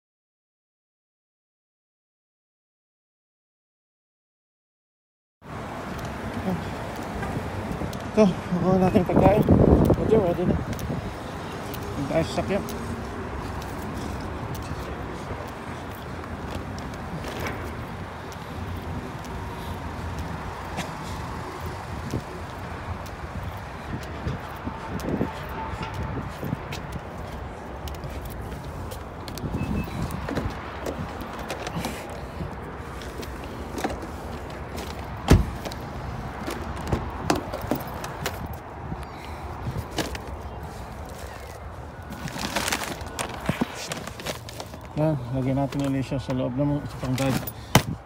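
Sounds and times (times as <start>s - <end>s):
outdoor background noise: 5.4s - 48.0s
road traffic rumble: 5.4s - 48.0s
footsteps on asphalt: 8.8s - 48.0s
car door shutting: 35.2s - 35.8s.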